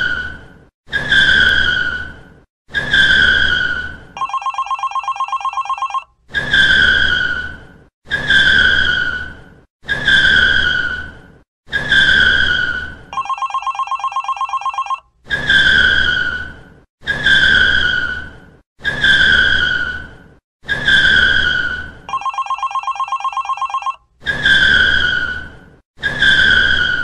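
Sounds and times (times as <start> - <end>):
trilling telephone bell: 4.2 - 6.1, 13.2 - 15.1, 22.1 - 24.0.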